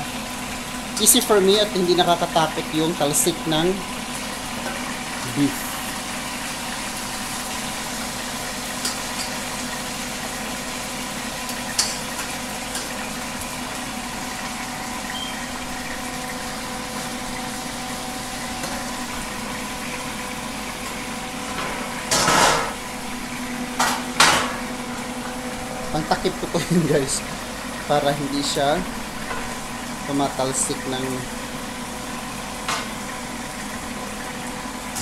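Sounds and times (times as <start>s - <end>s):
meat sizzling in hot oil: 0.0s - 35.0s
metal tray clattering on pan: 21.5s - 22.8s, 23.8s - 24.6s.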